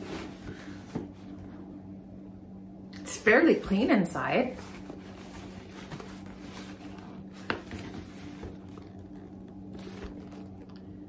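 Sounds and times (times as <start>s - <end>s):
steady low hum: 0.0s - 11.0s
handbag handling: 4.6s - 10.8s.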